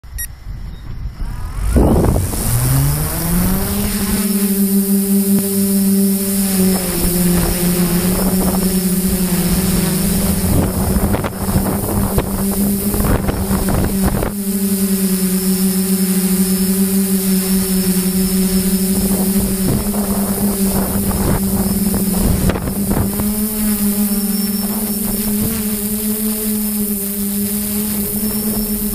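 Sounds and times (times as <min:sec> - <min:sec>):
electric motors and propellers humming: 0:00.0 - 0:28.9
wind buffeting microphone: 0:00.4 - 0:04.4, 0:06.6 - 0:14.5, 0:17.6 - 0:25.9.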